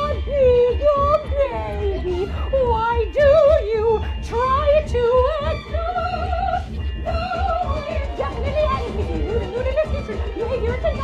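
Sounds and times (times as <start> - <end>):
high voice singing operatically: 0.0 - 11.0.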